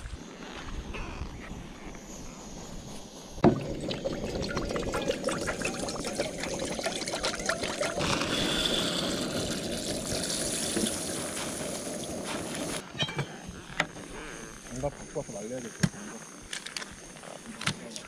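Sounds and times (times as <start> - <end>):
water pouring into metal pot: 3.4 - 12.8
rice grains poured into pot: 3.7 - 12.8.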